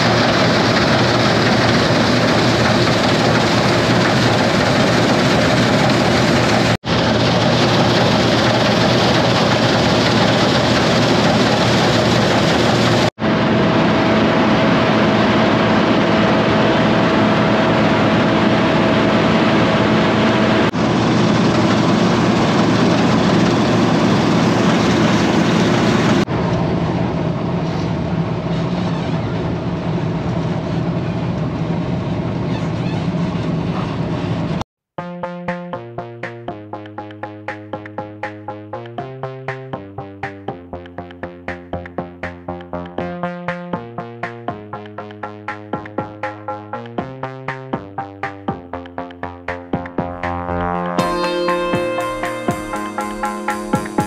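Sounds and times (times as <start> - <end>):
combine harvester drone: 0.0 - 34.6.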